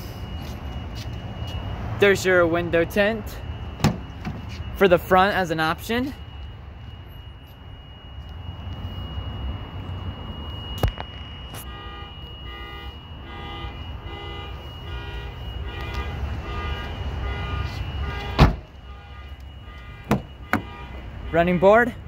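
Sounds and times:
steady high whine: 0.0s - 21.3s
electronic alarm beeping: 0.0s - 22.0s.

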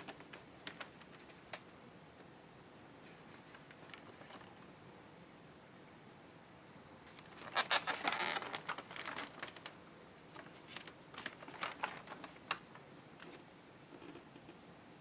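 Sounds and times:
plastic packaging crackling: 0.0s - 1.6s, 7.1s - 12.8s.

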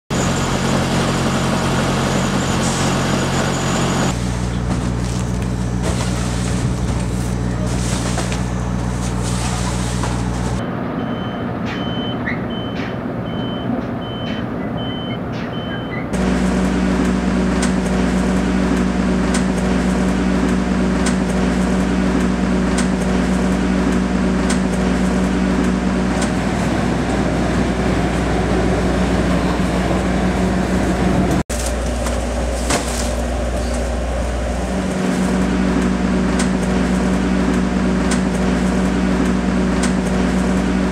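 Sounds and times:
truck engine idling: 0.1s - 40.9s
reversing beeper beeps: 2.0s - 4.1s, 10.6s - 16.1s.

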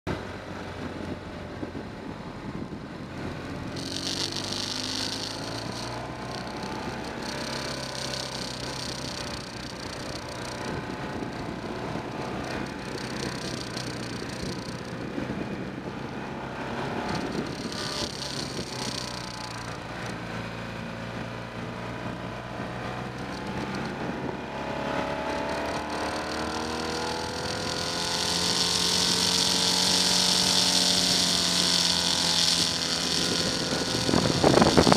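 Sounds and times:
motorcycle engine revving: 0.1s - 34.9s
wind hiss: 25.6s - 34.9s.

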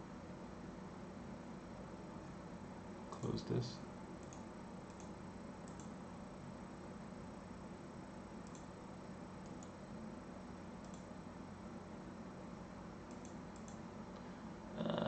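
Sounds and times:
low room hum: 0.0s - 15.0s
computer mouse clicks: 4.2s - 6.0s, 8.4s - 8.7s, 9.4s - 9.8s, 10.8s - 11.1s, 13.1s - 13.8s.

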